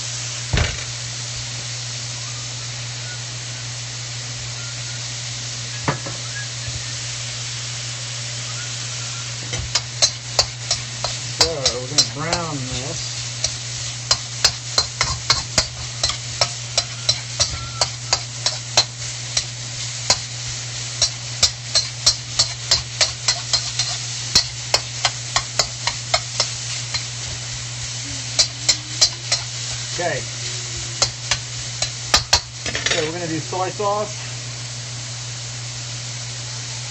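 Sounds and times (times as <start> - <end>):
chicken sizzling: 0.0 - 36.9
spatula scraping a wok: 9.4 - 33.1.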